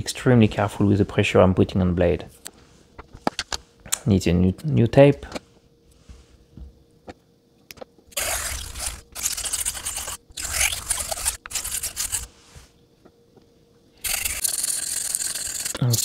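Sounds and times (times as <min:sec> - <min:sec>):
razor grinding on diamond plate: 0:08.1 - 0:12.3, 0:14.0 - 0:16.0.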